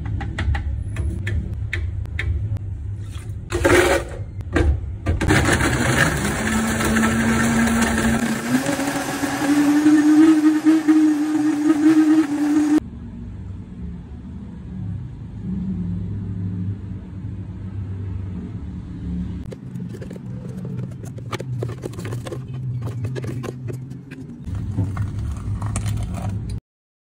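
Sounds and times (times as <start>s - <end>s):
spatula scraping plastic blender jar: 19.5s - 26.6s.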